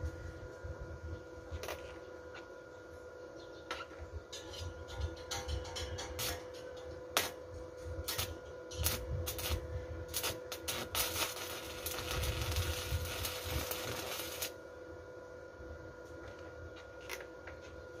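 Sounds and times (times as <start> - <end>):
welding arc crackling and sizzling: 1.5 - 2.4, 3.8 - 14.6.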